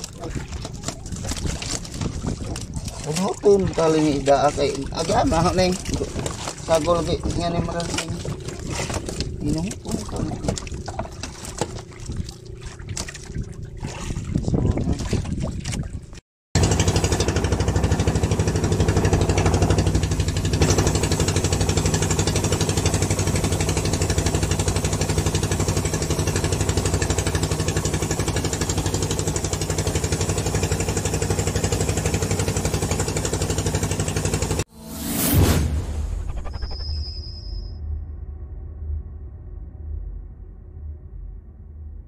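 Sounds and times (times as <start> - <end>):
water splashing: 0.0 - 34.6
boat engine humming: 0.0 - 34.7.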